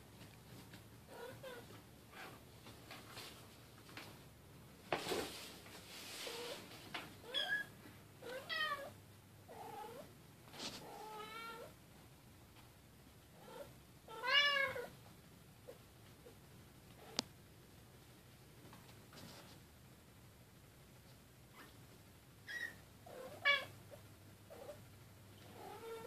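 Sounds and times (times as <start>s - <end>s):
cats meowing: 13.4s - 15.0s, 25.5s - 26.0s.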